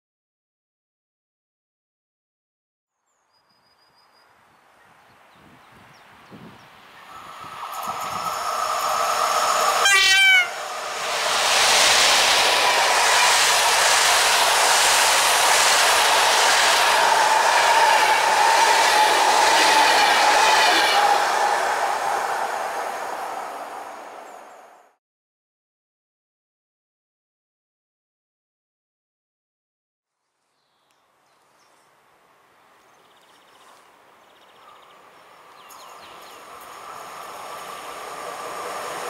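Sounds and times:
train coaches rushing past: 7.0 - 24.9, 35.7 - 39.0
wheels clacking on rails: 7.2 - 22.9
locomotive horn blast: 8.1 - 10.8.

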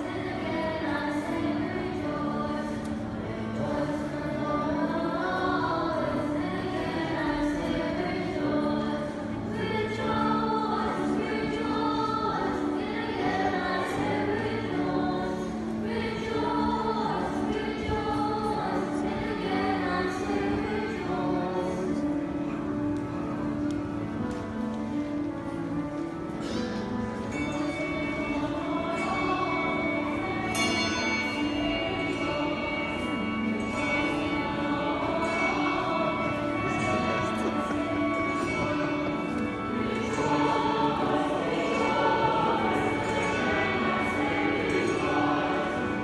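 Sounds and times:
mixed choir singing: 0.0 - 22.6, 27.3 - 46.0.

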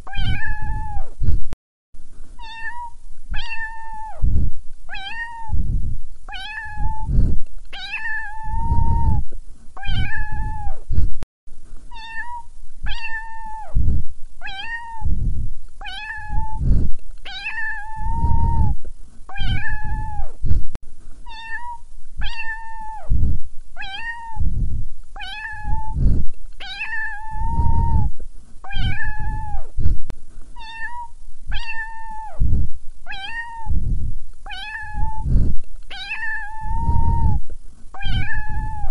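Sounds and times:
cat meowing: 0.1 - 1.1, 2.4 - 4.2, 4.9 - 5.6, 6.3 - 7.1, 7.8 - 9.2, 9.8 - 10.8, 11.9 - 13.8, 14.4 - 15.1, 15.8 - 16.6, 17.3 - 20.3, 21.3 - 23.1, 23.8 - 24.4, 25.2 - 26.0, 26.6 - 28.1, 28.7 - 29.7, 30.6 - 32.4, 33.1 - 33.8, 34.5 - 35.3, 35.9 - 37.4, 38.0 - 38.9.

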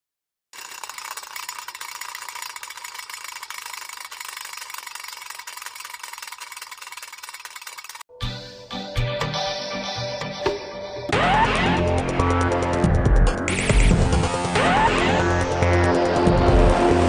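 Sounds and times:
spinning top whirring rattle: 0.5 - 8.1.

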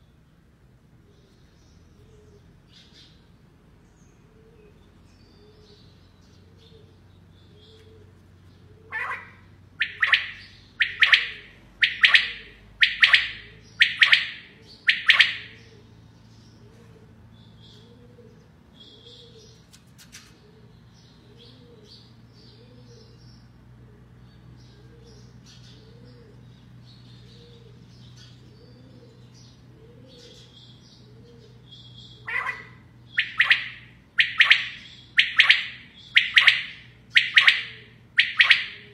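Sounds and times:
quail calling: 8.7 - 15.9, 29.8 - 38.9.

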